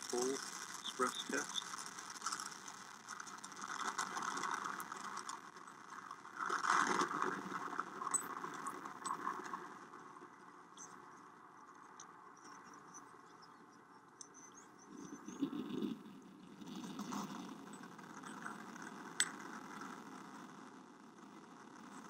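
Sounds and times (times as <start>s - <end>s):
rocket exhaust crackle: 0.0s - 9.9s, 14.9s - 22.0s.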